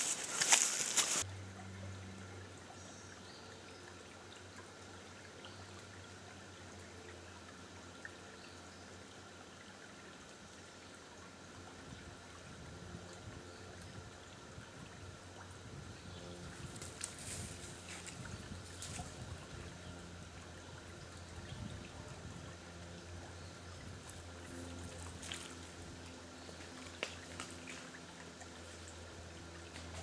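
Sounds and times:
clothing and brush rustling: 0.0s - 1.2s
woodland ambience: 0.0s - 12.1s, 16.0s - 21.6s, 22.6s - 30.0s
low hum: 0.0s - 30.0s.

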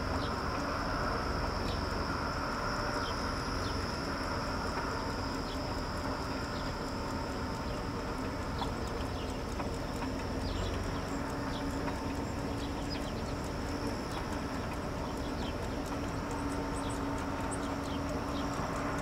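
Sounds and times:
outdoor background noise: 0.0s - 19.0s.

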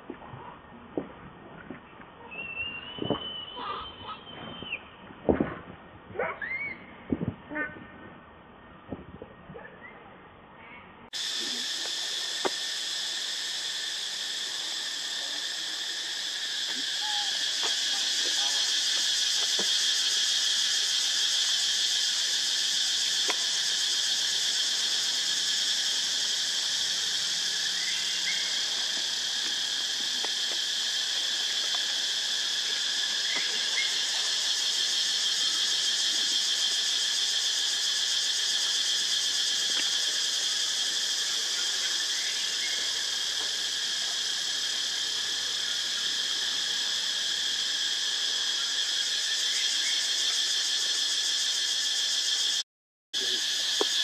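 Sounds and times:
insects buzzing: 11.1s - 52.6s, 53.2s - 54.0s.

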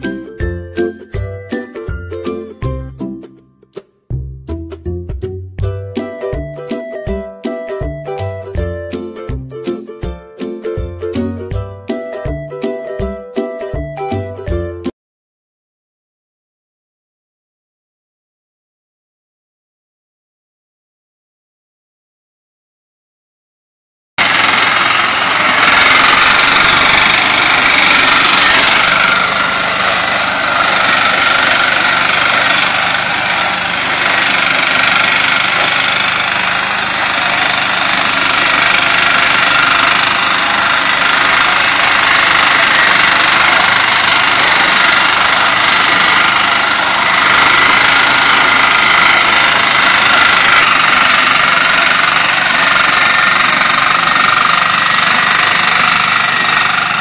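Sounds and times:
harvester engine running: 0.0s - 3.1s, 24.2s - 57.0s.

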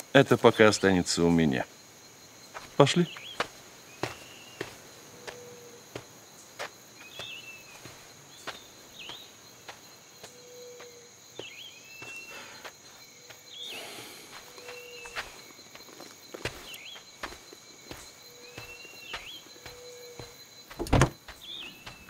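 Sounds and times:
high insect drone: 0.0s - 22.0s
footsteps on dirt path: 2.4s - 22.0s
bird chirp and whistle call: 4.1s - 4.7s, 14.6s - 15.2s, 18.3s - 20.3s, 21.4s - 22.0s.

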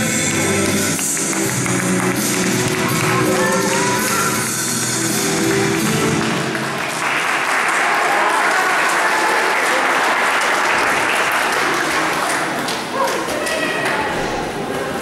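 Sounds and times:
music: 0.0s - 7.5s
audience applause: 0.0s - 14.2s.

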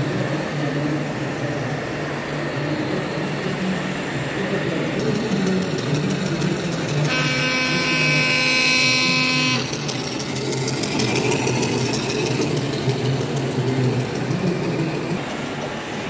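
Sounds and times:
busy hall noise: 0.0s - 16.0s
steady horn-like tone: 7.0s - 9.9s.

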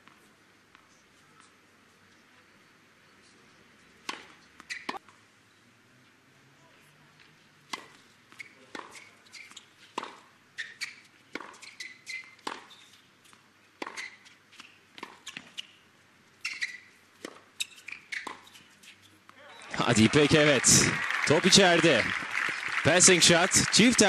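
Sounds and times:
shoes squeaking on court: 3.2s - 5.0s, 7.7s - 20.5s
racquets hitting tennis ball: 19.3s - 24.0s.

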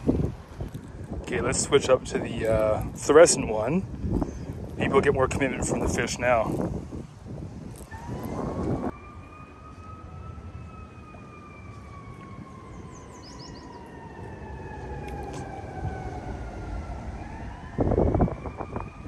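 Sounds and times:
faint siren wailing: 7.7s - 19.0s.

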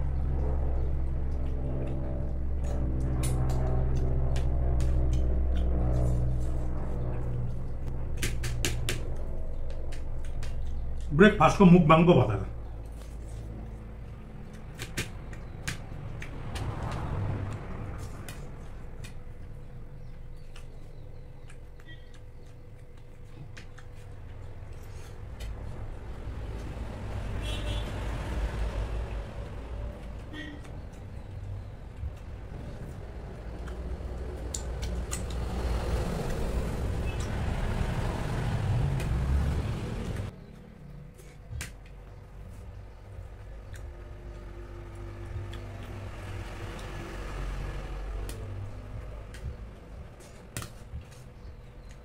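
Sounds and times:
low rumbling: 0.0s - 50.2s
low background hum: 0.0s - 52.0s
eating clicks and smacks: 0.1s - 6.3s, 7.0s - 11.2s, 12.7s - 26.9s, 29.8s - 37.5s, 43.1s - 44.4s, 45.3s - 47.0s, 47.8s - 52.0s.

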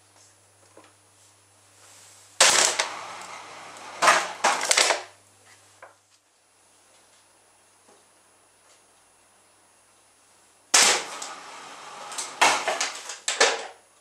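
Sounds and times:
sharp cracks: 2.4s - 5.2s, 10.7s - 13.8s
plastic bottle stamped flat: 12.4s - 13.7s.

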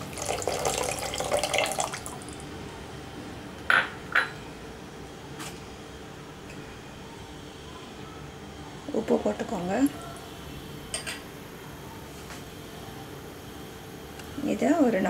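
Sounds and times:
liquid pouring and splashing: 0.0s - 2.3s.

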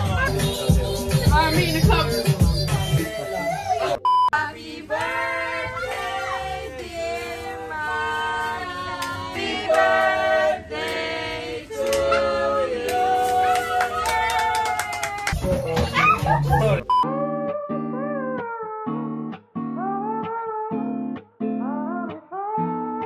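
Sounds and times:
short beep: 4.0s - 4.4s.

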